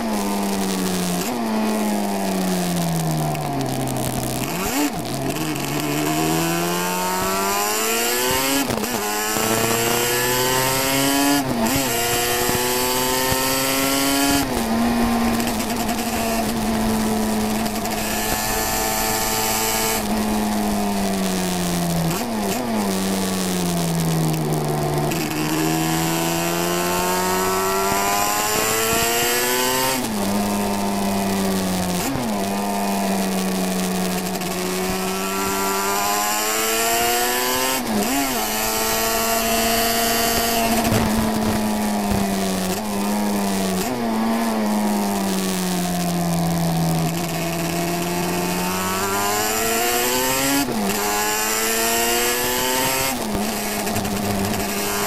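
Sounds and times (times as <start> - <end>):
racing motorcycle engine revving: 0.0 - 55.0
wind noise: 37.8 - 43.1
microphone crackling: 39.6 - 42.9.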